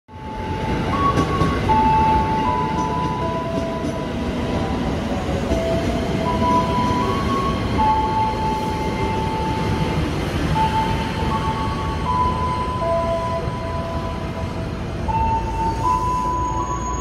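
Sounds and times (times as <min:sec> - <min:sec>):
train wheels rumbling on rails: 0:00.1 - 0:17.0.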